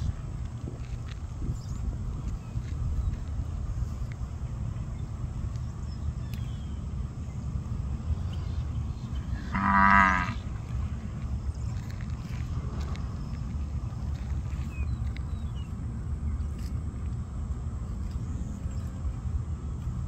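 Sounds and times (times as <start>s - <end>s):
steady low rumble: 0.0s - 20.0s
cow mooing: 9.4s - 10.4s.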